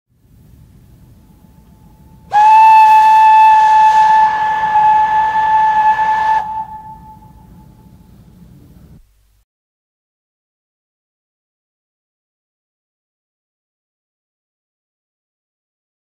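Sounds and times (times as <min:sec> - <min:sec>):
low steady rumble: 0:00.1 - 0:09.4
steam locomotive whistle: 0:01.4 - 0:08.0.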